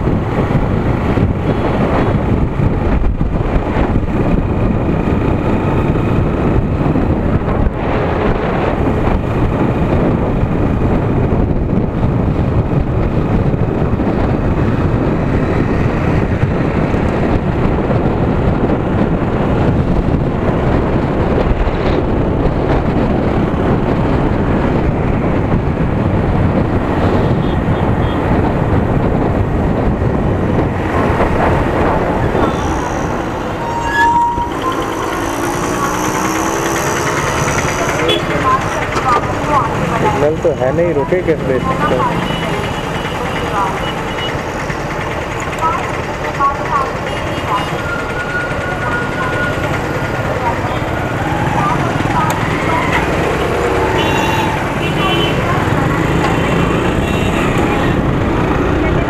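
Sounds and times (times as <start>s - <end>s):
road noise: 0.0s - 59.0s
wind rushing over microphone: 0.0s - 59.0s
motorcycle engine: 0.1s - 59.0s.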